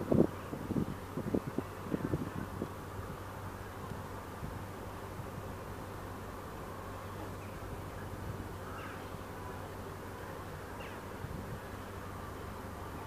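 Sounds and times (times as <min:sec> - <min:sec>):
faint short bird calls: 0:08.6 - 0:09.1.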